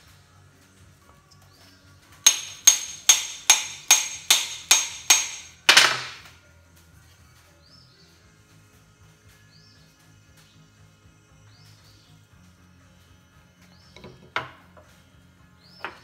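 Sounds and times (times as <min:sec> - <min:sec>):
hammer blows with metallic ring: 0:02.3 - 0:06.3.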